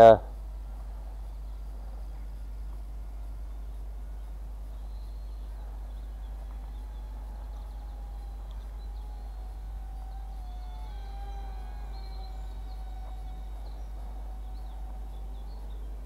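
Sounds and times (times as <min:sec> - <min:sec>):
faint bird chirps: 0:00.0 - 0:16.0
wind rumble on microphone: 0:00.0 - 0:16.0
model plane motor drone: 0:04.8 - 0:16.0.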